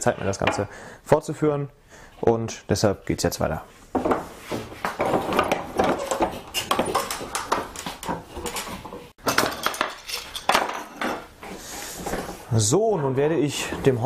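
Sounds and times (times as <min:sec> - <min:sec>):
wooden knocks and rattles: 0:03.9 - 0:11.3.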